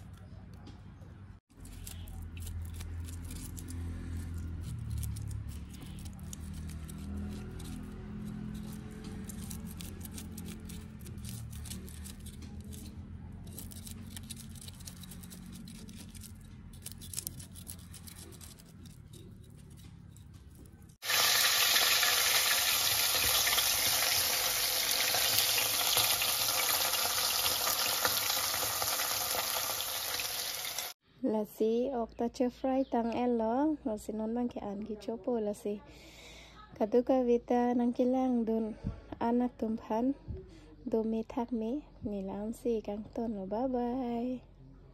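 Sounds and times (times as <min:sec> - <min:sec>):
knife scraping fish scales: 0:01.5 - 0:30.9
fish sizzling in hot oil: 0:21.0 - 0:31.0.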